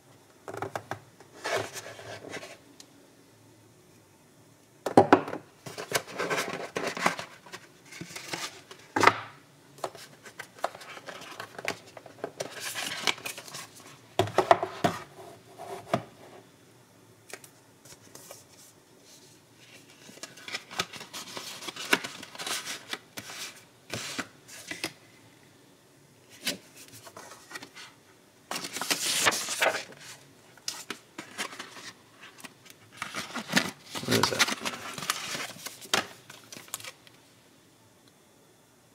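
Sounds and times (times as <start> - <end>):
cardboard and paper rustling: 1.4 - 2.6, 5.6 - 9.1, 9.8 - 15.1, 17.9 - 24.9, 26.3 - 37.0.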